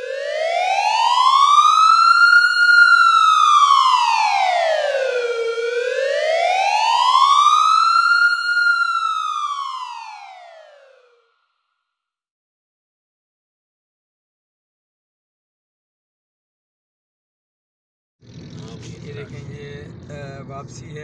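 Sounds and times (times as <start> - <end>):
siren wail: 0.0 - 11.3.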